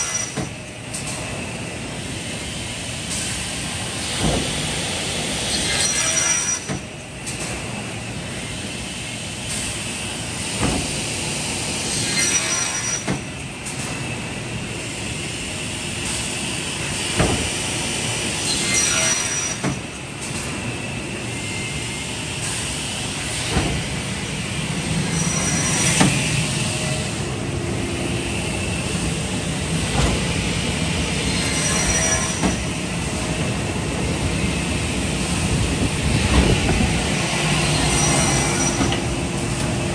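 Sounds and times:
saw machine noise: 16.4 - 20.0, 20.6 - 39.9.

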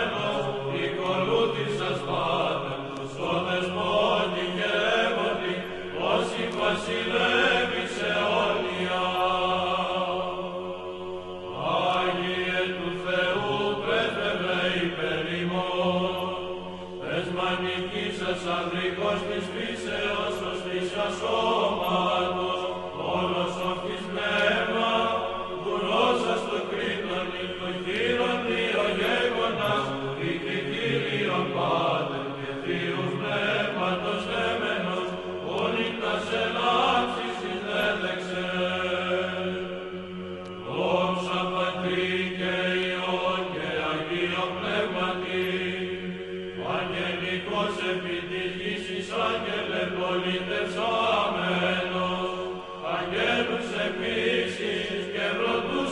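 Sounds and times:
voices chanting: 0.0 - 55.9.

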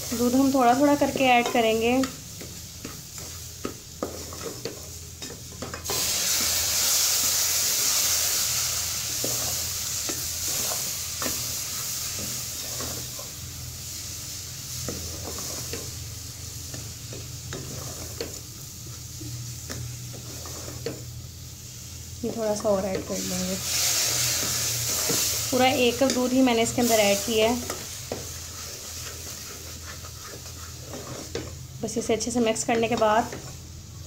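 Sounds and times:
milk sizzling in hot pot: 0.0 - 34.0
spoon scraping a metal pot: 17.5 - 18.4, 19.7 - 21.0, 27.6 - 31.6.

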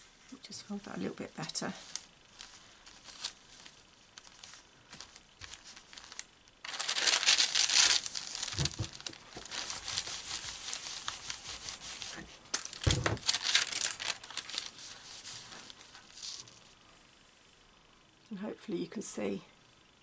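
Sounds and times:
parchment paper crinkling: 0.3 - 16.8
iron sliding over paper: 1.5 - 16.6.

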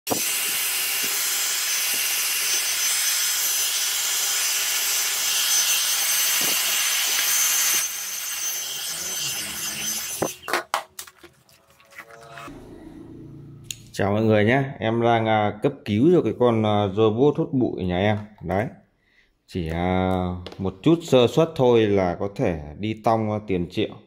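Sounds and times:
hair dryer blowing: 4.8 - 10.4.

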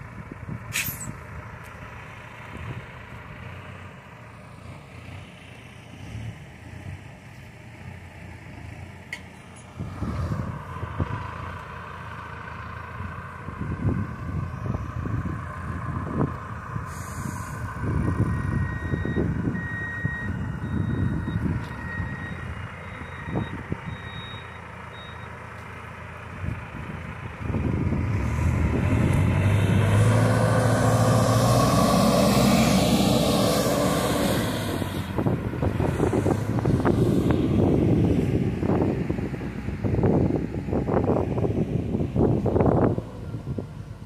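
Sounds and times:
tractor diesel engine running: 0.0 - 44.0
reversing alarm beeping: 18.3 - 25.4.

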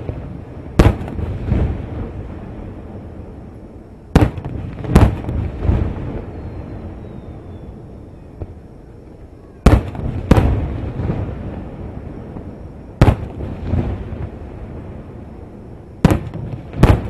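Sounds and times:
firework shells booming: 0.0 - 2.2, 4.1 - 6.3, 9.6 - 14.5, 15.9 - 17.0.

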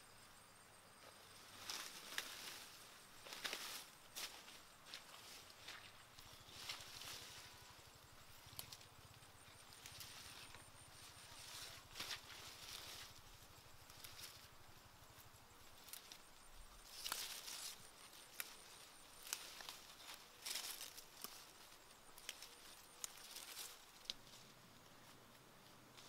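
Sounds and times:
rustling of vines picked by hand: 1.0 - 26.0
stems snapping: 8.5 - 8.9, 16.8 - 18.6, 19.2 - 21.5, 22.2 - 24.4.

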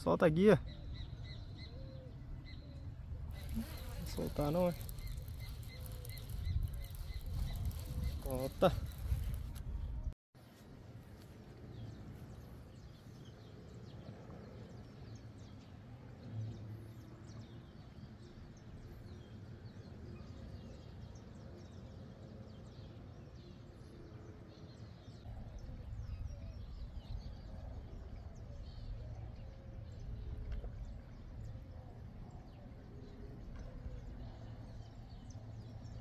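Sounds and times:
faint bird chirps: 0.6 - 9.4
wind rumbling on microphone: 2.4 - 10.2, 25.2 - 36.0.

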